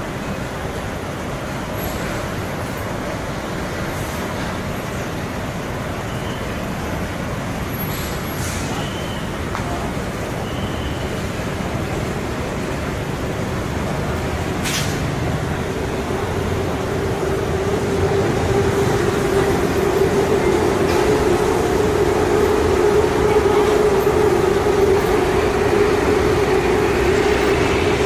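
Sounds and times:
city street traffic: 0.0 - 28.0.

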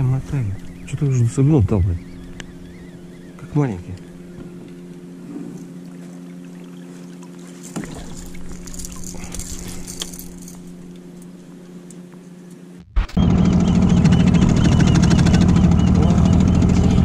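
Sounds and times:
outboard motor running: 0.0 - 17.0
water splashes: 4.6 - 11.1.

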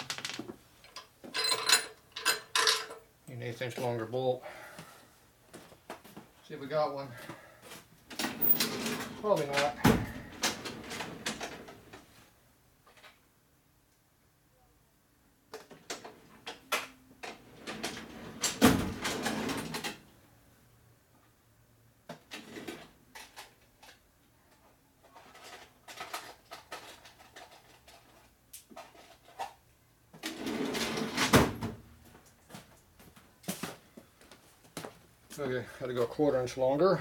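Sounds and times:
hardware clicking and knocking: 0.0 - 3.0.

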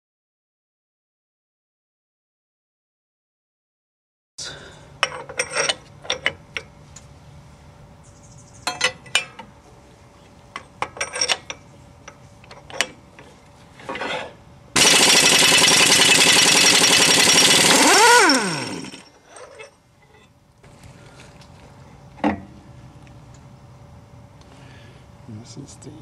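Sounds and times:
metal tools clicking and knocking: 5.0 - 6.7, 8.6 - 9.5, 10.5 - 13.3
air impact wrench hammering: 14.8 - 19.2.

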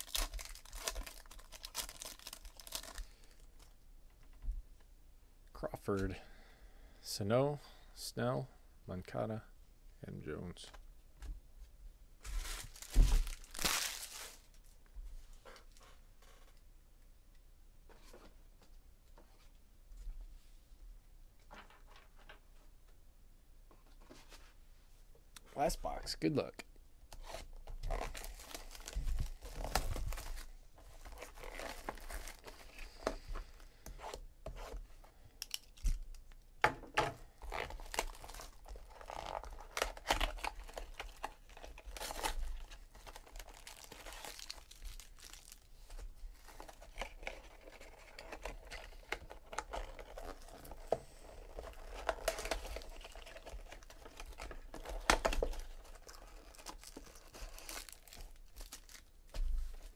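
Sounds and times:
foil wrappers ripping: 0.0 - 3.1, 12.4 - 14.5, 37.4 - 45.7, 51.5 - 59.1
wrappers crinkling: 0.0 - 3.5, 12.2 - 14.7, 27.8 - 32.9, 37.4 - 59.2.

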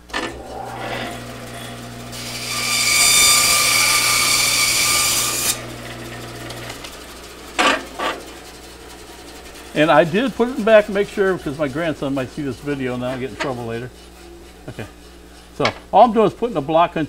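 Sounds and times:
hissing whine: 0.0 - 2.2
power tool motor running: 0.0 - 7.6.

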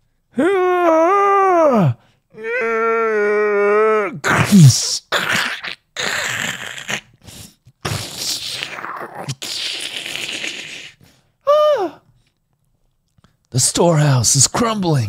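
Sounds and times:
man making crackling mouth sounds: 4.3 - 11.0.

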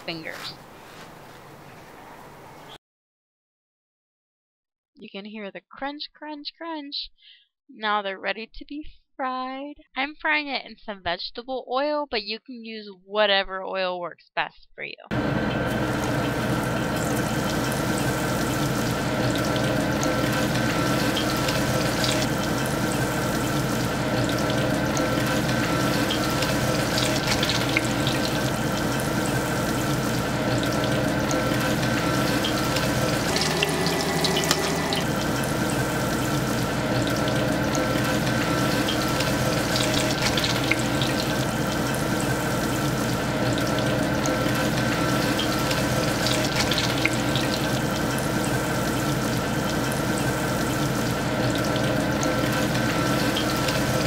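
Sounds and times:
fish frying in oil: 15.1 - 54.0.

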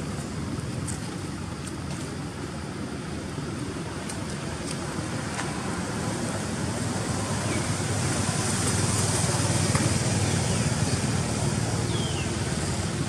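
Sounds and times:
rushing outdoor noise with low rumble: 0.0 - 13.0.

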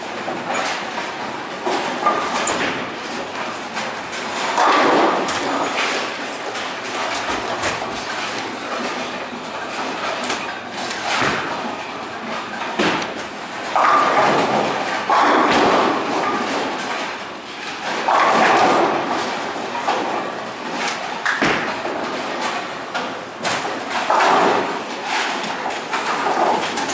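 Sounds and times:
bowling pins crashing: 1.7 - 9.1, 10.8 - 11.9, 12.6 - 17.0.

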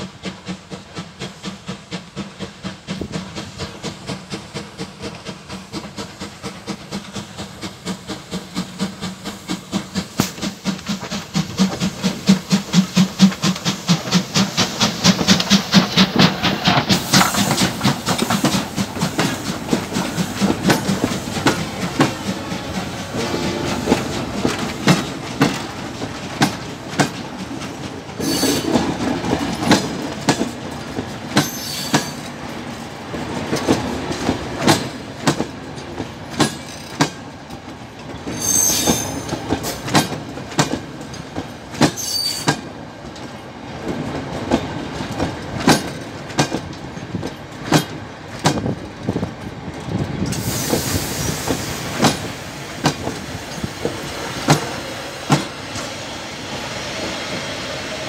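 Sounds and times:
train wheels clicking over rail joints: 0.0 - 58.0
wheels squealing: 28.2 - 28.8, 38.3 - 39.4, 42.0 - 42.6
short hiss: 50.3 - 52.1.

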